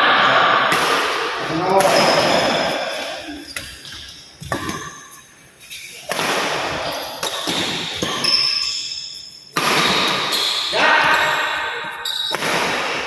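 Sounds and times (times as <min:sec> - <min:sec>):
shoes squeaking on court floor: 0:01.8 - 0:12.6
badminton racket hitting shuttlecock: 0:05.8 - 0:08.7, 0:09.5 - 0:13.0.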